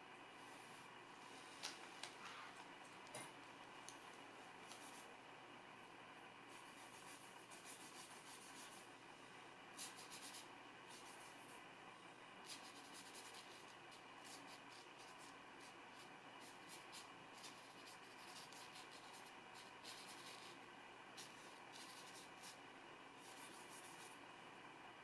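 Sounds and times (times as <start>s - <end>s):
brush scratching on paper: 4.6s - 5.1s, 6.5s - 8.8s, 9.8s - 11.6s, 12.4s - 20.6s, 21.2s - 22.6s, 23.2s - 24.2s.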